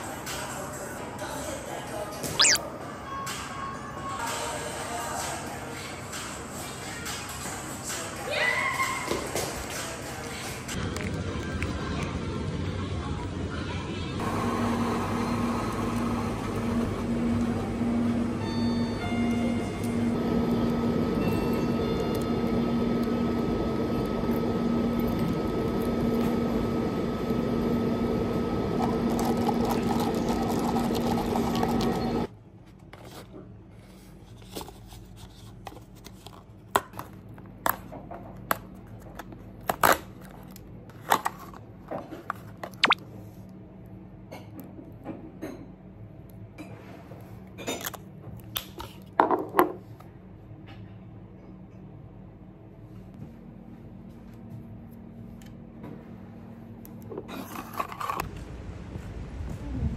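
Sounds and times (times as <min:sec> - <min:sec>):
short high tones: 0:02.4 - 0:02.6
coffee machine humming: 0:14.2 - 0:32.3.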